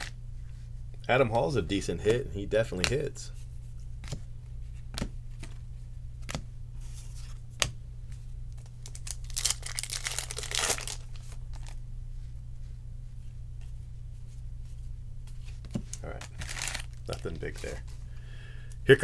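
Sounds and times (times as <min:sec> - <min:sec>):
foil wrapper tearing and crinkling: 0:08.8 - 0:11.8, 0:16.2 - 0:17.8.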